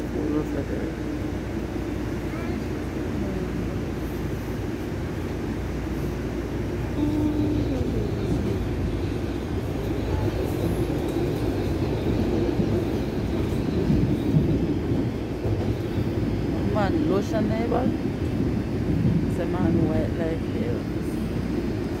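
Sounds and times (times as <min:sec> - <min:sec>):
faint voices: 0:07.0 - 0:13.6.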